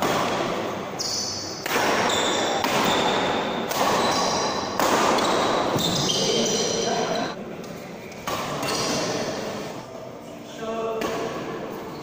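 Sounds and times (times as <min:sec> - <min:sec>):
rackets hitting shuttlecock: 0:00.0 - 0:06.5, 0:08.1 - 0:09.2, 0:11.0 - 0:11.6
shoe squeaks on court floor: 0:00.9 - 0:03.4, 0:04.0 - 0:07.3, 0:08.5 - 0:09.4.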